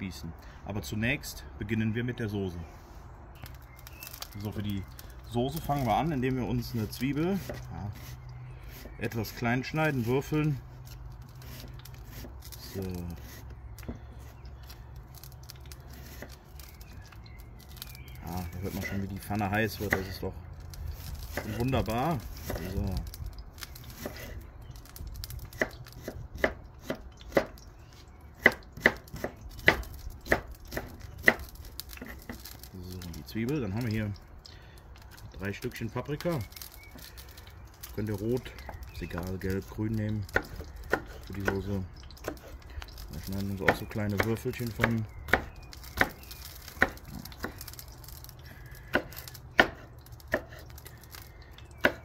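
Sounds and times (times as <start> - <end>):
knife chopping on wooden board: 25.5 - 27.6, 28.4 - 32.1, 40.3 - 42.5, 46.8 - 47.5, 48.9 - 50.6, 51.8 - 52.0.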